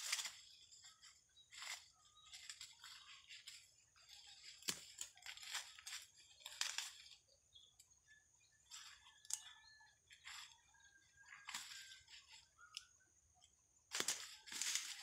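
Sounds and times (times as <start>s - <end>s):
dry corn husks rustling: 0.0s - 7.8s, 8.5s - 12.9s, 13.8s - 15.0s
stalk snapping: 4.6s - 7.0s, 13.9s - 15.0s.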